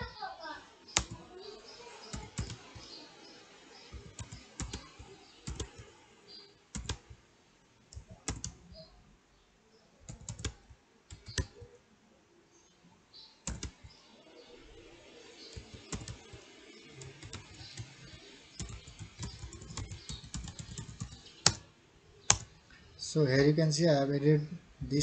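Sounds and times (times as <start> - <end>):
typing on computer keyboard: 0.9 - 1.2, 2.0 - 3.0, 3.9 - 5.9, 6.7 - 7.2, 7.9 - 8.6, 10.1 - 11.7, 13.5 - 13.9, 15.5 - 21.6, 22.3 - 22.5.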